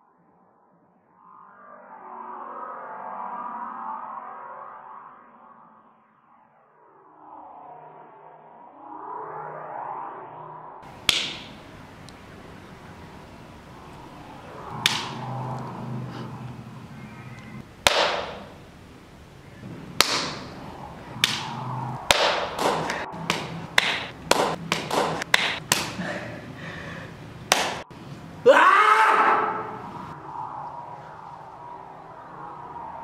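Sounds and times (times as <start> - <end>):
sharp hits: 10.8 - 26.1, 27.4 - 28.0.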